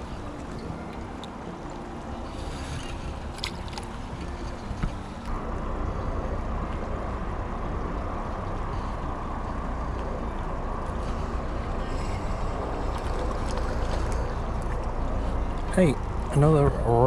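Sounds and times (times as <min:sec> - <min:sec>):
river water rushing: 0:00.0 - 0:17.0
wind rumble on microphone: 0:00.0 - 0:17.0.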